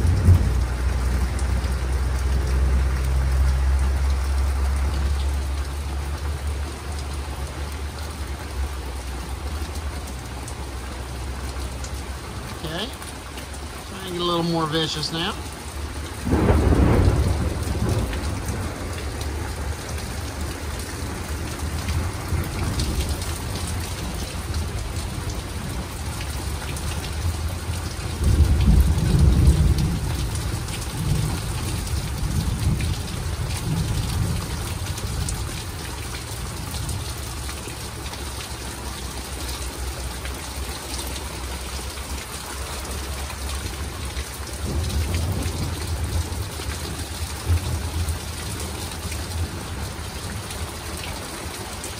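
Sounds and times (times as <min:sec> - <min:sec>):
rolling thunder: 0:00.0 - 0:01.3, 0:16.2 - 0:23.8, 0:27.7 - 0:35.5
steady rain: 0:00.0 - 0:51.9.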